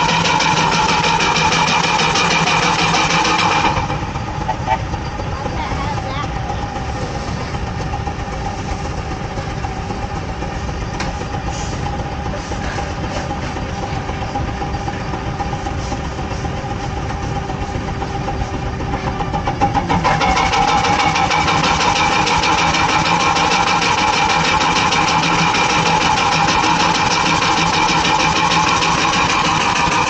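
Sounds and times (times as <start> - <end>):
steam engine exhaust chuffing: 0.0 - 30.0
steam hiss: 15.6 - 19.1.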